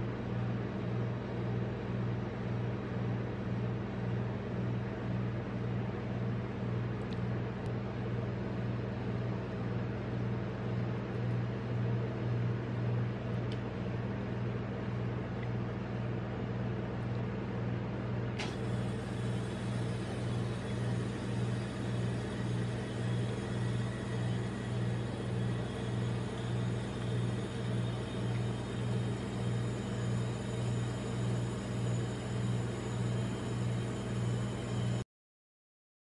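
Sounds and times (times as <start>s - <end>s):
refrigeration compressor humming: 0.0s - 35.0s
sharp click: 18.4s - 18.6s.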